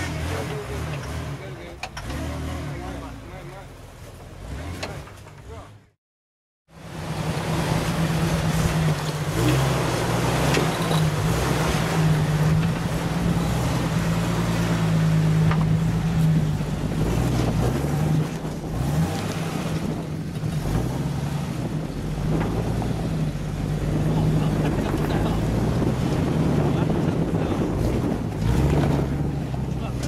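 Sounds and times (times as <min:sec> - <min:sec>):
engine running at low revs: 0:00.0 - 0:05.9, 0:06.7 - 0:30.0.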